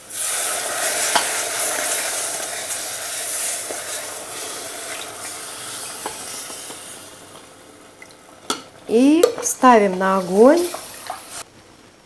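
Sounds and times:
syrup sizzling in a pot: 0.0s - 11.5s.

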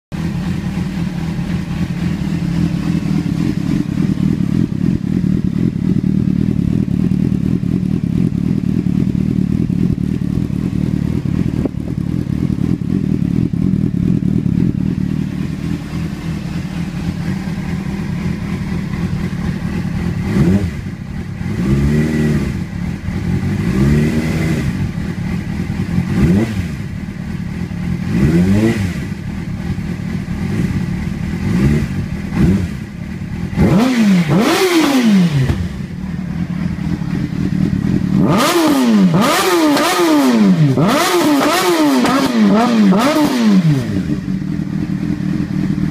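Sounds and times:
motorcycle engine idling: 0.1s - 45.9s
engine revving in throttle blips: 9.8s - 27.1s, 27.9s - 45.9s.

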